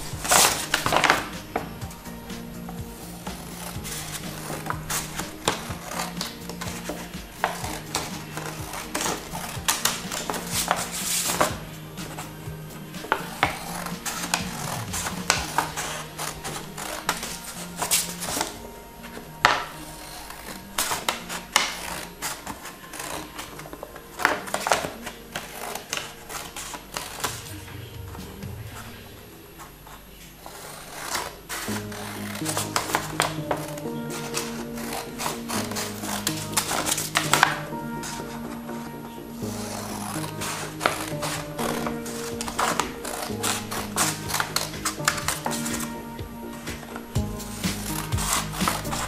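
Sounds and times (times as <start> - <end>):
paper rustling: 0.0 - 49.0
soft background music: 0.0 - 49.0
scissors snipping paper: 39.5 - 46.0.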